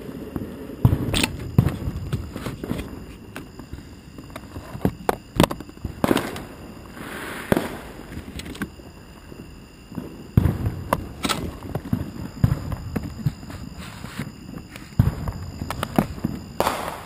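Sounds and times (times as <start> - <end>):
fireworks bangs and pops: 0.0 - 8.8, 9.9 - 17.0
firework hiss: 5.8 - 8.3, 10.0 - 17.0.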